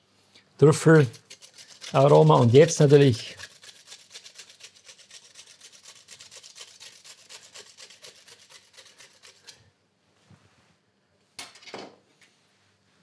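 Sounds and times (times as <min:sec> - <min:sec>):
truffle slicer rasping: 0:00.6 - 0:09.6.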